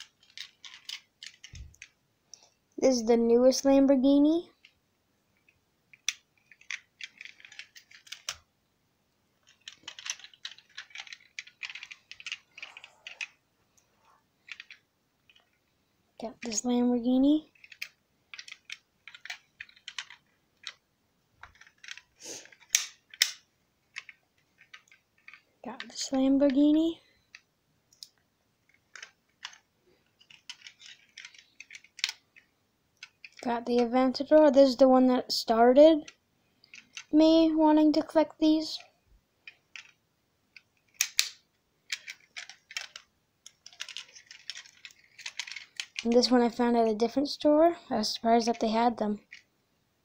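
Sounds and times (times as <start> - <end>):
fingers tapping phone and toy cars: 0.0 - 2.4, 5.4 - 8.5, 9.4 - 15.6, 16.4 - 20.8, 21.4 - 34.5, 35.8 - 37.4, 38.0 - 46.4.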